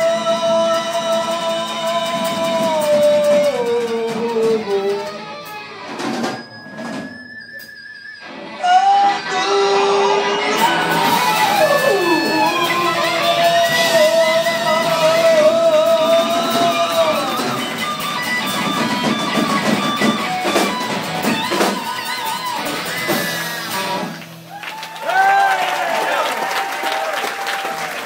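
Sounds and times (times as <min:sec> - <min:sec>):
lead electric guitar bends: 0:00.0 - 0:24.5
strummed guitars: 0:00.0 - 0:24.6.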